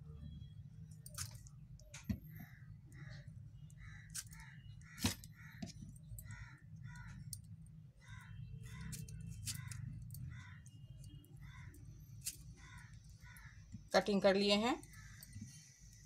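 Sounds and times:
crows cawing: 2.4s - 7.4s, 8.0s - 13.9s, 14.8s - 15.6s.

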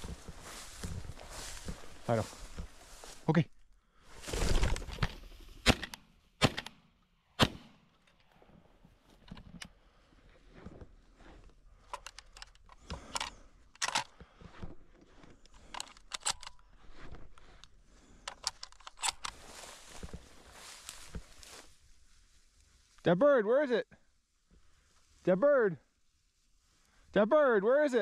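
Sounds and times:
rustling through cover: 4.1s - 5.1s
shotgun shots: 5.6s - 6.8s, 7.4s - 7.8s.

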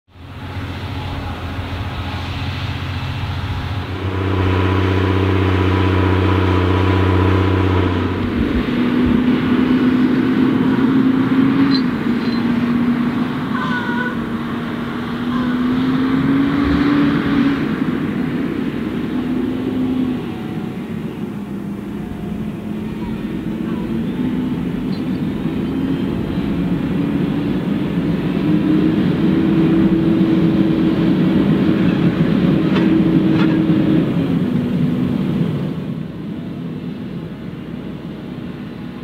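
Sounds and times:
tractor engines droning under load: 0.1s - 39.0s.

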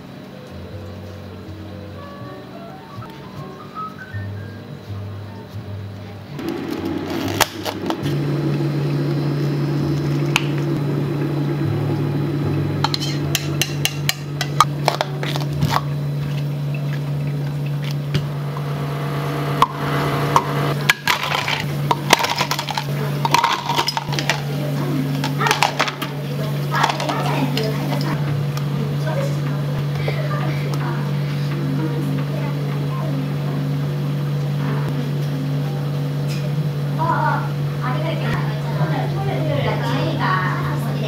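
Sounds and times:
low hum of equipment: 0.0s - 41.0s
kitchenware clinking and tapping: 12.8s - 18.0s, 20.8s - 28.2s.

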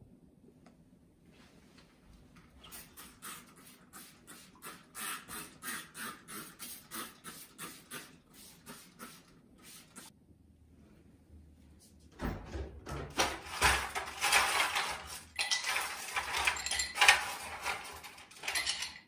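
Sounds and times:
spray bottle squirts: 2.6s - 10.1s.

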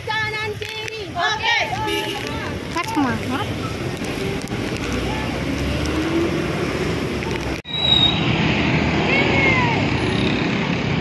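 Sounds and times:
voices calling out: 0.0s - 6.3s
traffic noise: 0.0s - 11.0s.

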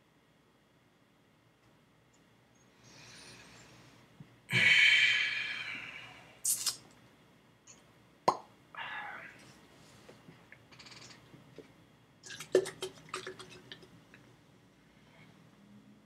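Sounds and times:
loud breathy hiss: 4.5s - 6.7s.

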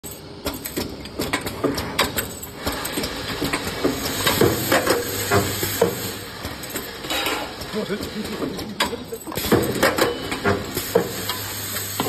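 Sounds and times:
sharp metallic clanks and clicks: 0.0s - 11.4s
welding machine running: 2.5s - 12.0s.

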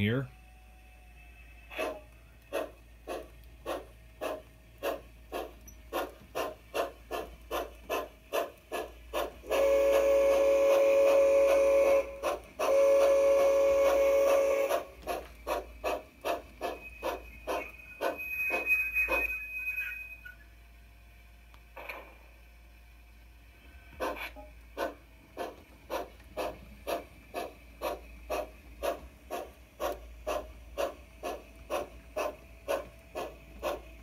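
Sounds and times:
model steam locomotive chuffing: 1.0s - 20.8s, 23.0s - 34.0s
steam whistle blasts: 9.4s - 15.0s, 16.8s - 20.4s.

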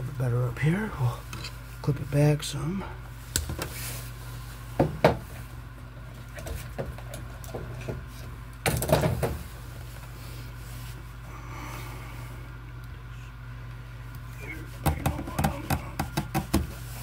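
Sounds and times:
steady low hum: 0.0s - 17.0s
knocking and handling of wires: 6.4s - 9.4s, 14.8s - 16.8s.

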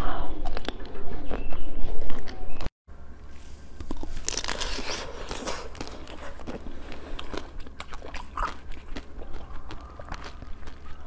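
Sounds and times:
chewing and mouth sounds: 3.8s - 11.0s.

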